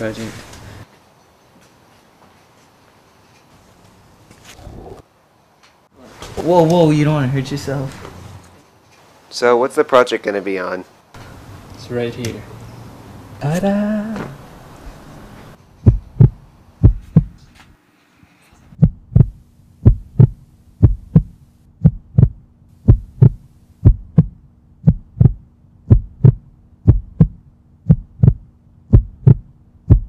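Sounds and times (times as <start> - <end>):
steady low hum: 11.1 - 17.8, 18.5 - 30.0
heartbeat double thump: 15.8 - 17.4, 18.8 - 30.0.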